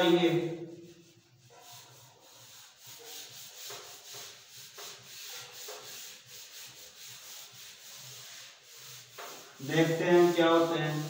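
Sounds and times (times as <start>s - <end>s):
eraser scrubbing a whiteboard: 0.0s - 11.0s.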